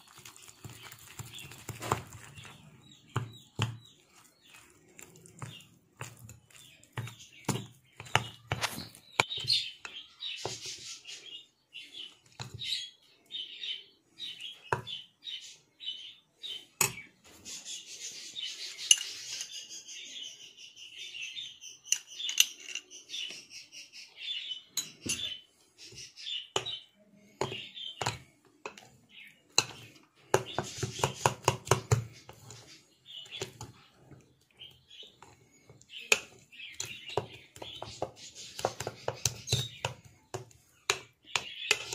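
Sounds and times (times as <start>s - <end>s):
birds chirping: 0.0s - 41.9s
metal spoon scraping glass bowl: 18.7s - 19.7s.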